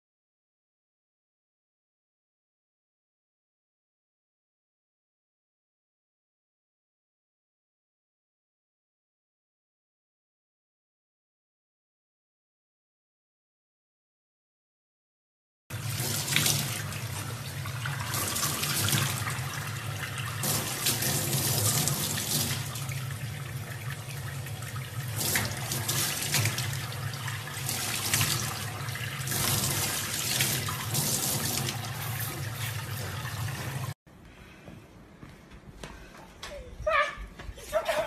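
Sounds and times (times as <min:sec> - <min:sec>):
tap water splashing into sink: 0:15.8 - 0:34.0.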